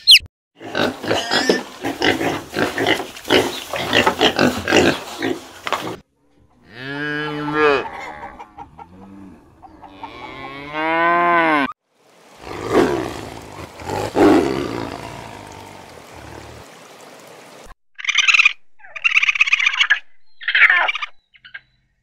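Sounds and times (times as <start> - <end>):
cow mooing: 6.5 - 11.7, 12.4 - 16.6
tiger growling: 12.4 - 16.6.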